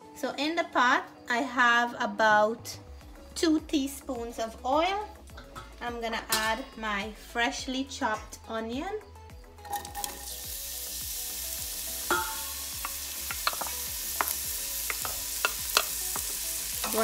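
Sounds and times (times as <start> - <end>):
onion sizzling in hot oil: 9.6 - 17.0
wooden spoon tapping ceramic bowl: 12.1 - 17.0.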